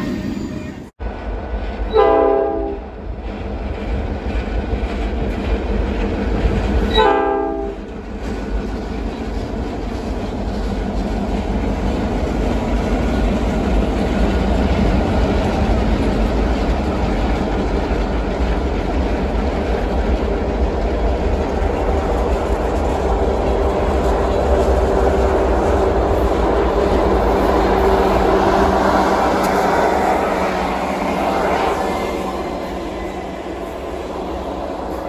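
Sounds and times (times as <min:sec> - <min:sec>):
freight train rumbling past: 0:00.0 - 0:35.0
locomotive air horn blasts: 0:01.9 - 0:02.8, 0:06.9 - 0:07.8.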